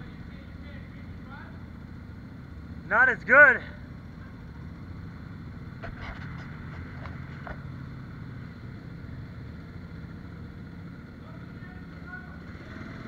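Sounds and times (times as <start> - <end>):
motorbike engine running: 0.0 - 13.0
sharp knocks and rattles: 5.8 - 7.9.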